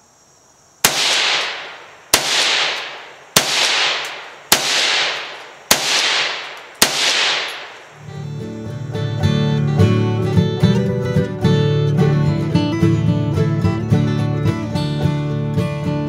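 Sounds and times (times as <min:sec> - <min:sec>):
rifle shots with echo: 0:00.8 - 0:08.0.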